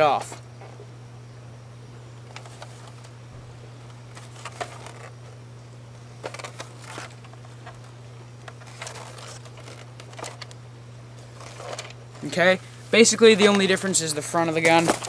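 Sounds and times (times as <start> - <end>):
steady low hum: 0.0 - 15.0
plastic parts clicking and rustling: 2.3 - 3.1, 3.9 - 5.4, 6.2 - 10.6, 11.2 - 12.4, 13.2 - 15.0.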